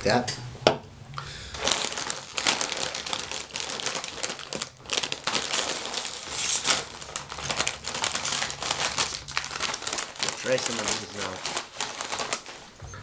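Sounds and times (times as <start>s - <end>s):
plastic chip bag crinkling: 1.4s - 12.8s.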